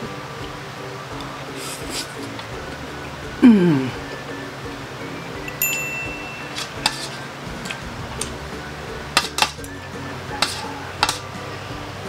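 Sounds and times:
background music: 0.0s - 12.0s
cutlery clinking on metal tray: 5.6s - 7.8s, 9.2s - 9.6s, 10.4s - 11.2s.

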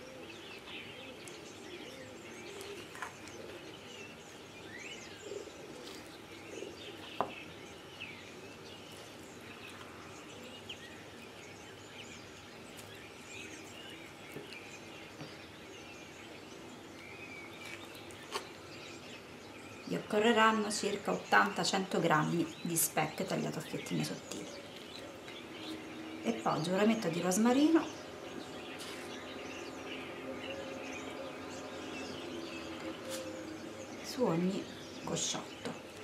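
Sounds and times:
small birds chirping: 0.0s - 36.0s.

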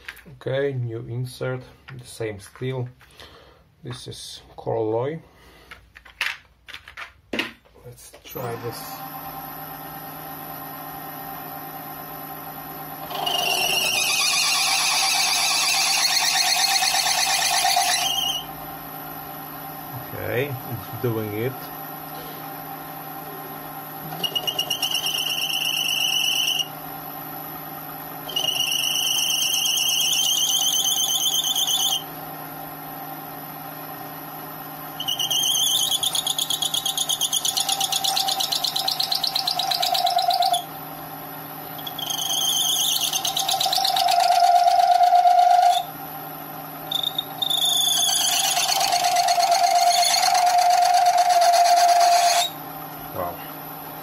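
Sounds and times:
lathe humming: 8.3s - 54.0s
lathe tool squealing on steel: 13.0s - 18.5s, 24.0s - 26.8s, 28.2s - 32.1s, 34.9s - 40.7s, 41.7s - 46.0s, 46.9s - 52.6s.

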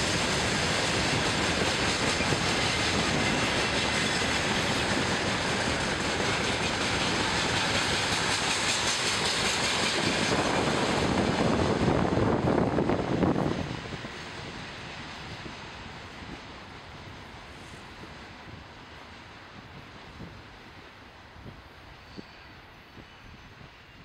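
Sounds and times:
freight wagon wheels rumbling on rails: 0.0s - 16.5s.

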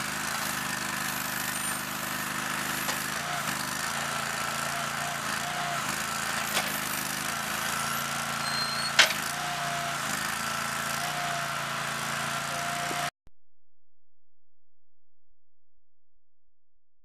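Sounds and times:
loader engine running: 0.0s - 13.1s.

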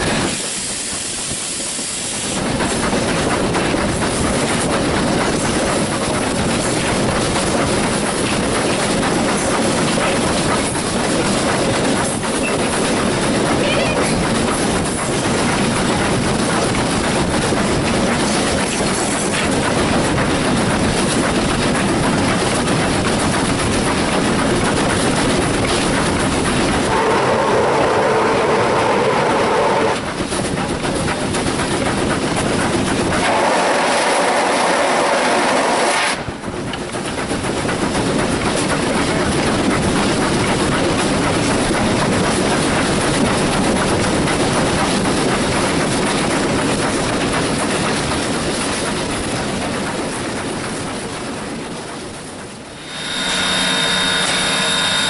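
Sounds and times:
steam train running: 0.0s - 55.0s
wheels clacking over rail joints: 2.3s - 27.3s, 27.9s - 55.0s
train whistle blasts: 26.9s - 30.0s, 33.2s - 36.2s, 52.8s - 55.0s.

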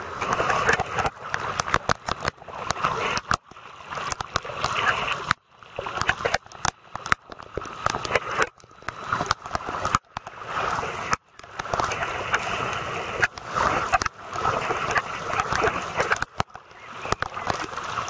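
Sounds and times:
rushing water: 0.0s - 18.0s
sharp clicks: 0.3s - 10.4s.

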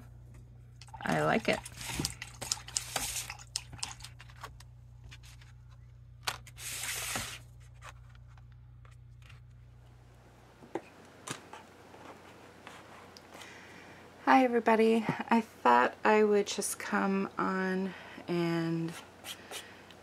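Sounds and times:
card scraping rustle: 1.7s - 8.5s.

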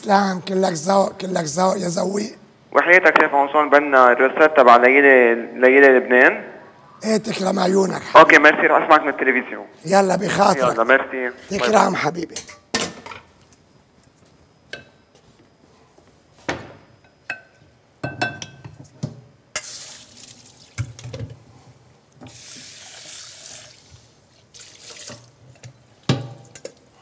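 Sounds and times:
metal pots and utensils clinking: 12.3s - 13.2s.

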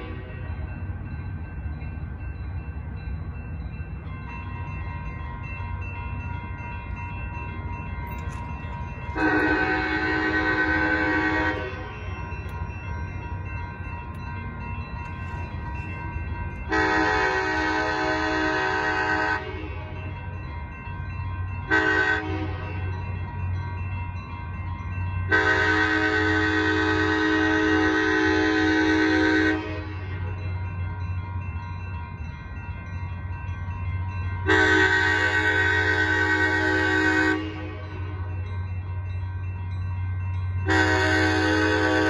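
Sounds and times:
crossing bell ringing: 0.0s - 42.0s
train horn blasts: 9.2s - 11.9s, 16.7s - 19.9s, 21.7s - 22.8s, 25.3s - 30.2s, 34.5s - 38.3s, 40.6s - 42.0s.

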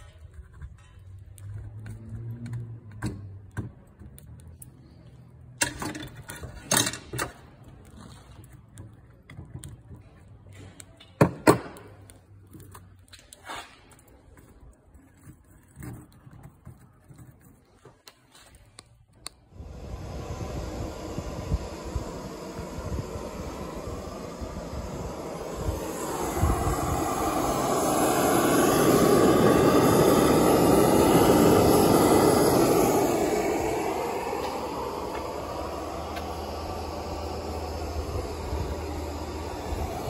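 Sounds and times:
gas burner rumble: 18.8s - 40.0s.

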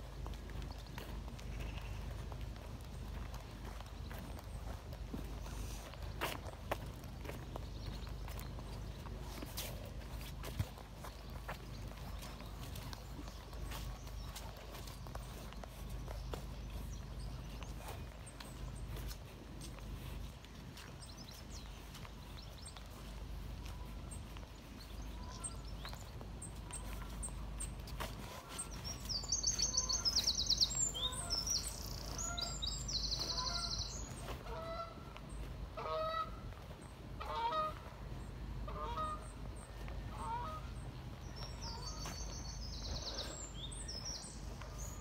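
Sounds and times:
geese honking: 32.1s - 35.1s, 35.7s - 36.4s, 37.2s - 37.9s, 38.6s - 39.4s, 40.1s - 40.8s.

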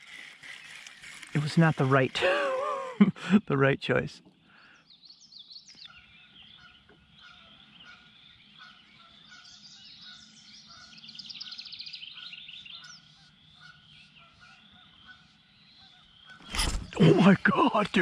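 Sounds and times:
birds chirping: 0.0s - 18.0s
bird trill: 4.6s - 18.0s.

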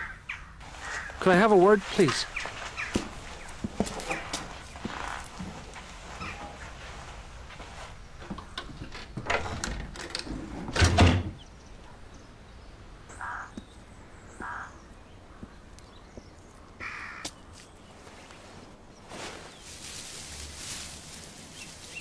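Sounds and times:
door clicks and knocks: 8.4s - 11.4s.

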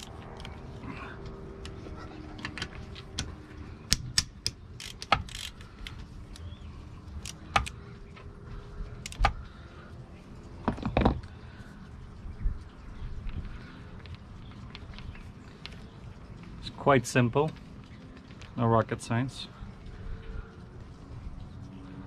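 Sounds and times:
ratchet wrench clicking: 4.1s - 5.6s.

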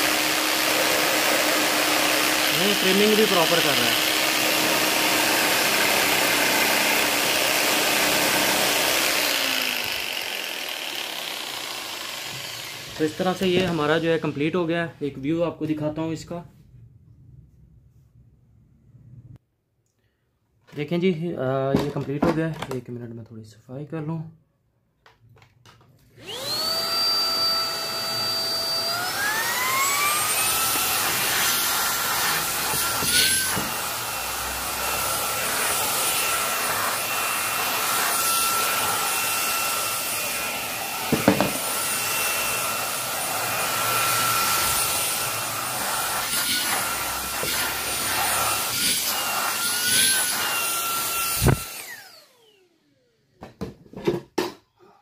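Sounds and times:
handheld vacuum cleaner whine: 0.0s - 14.3s, 26.2s - 54.5s.

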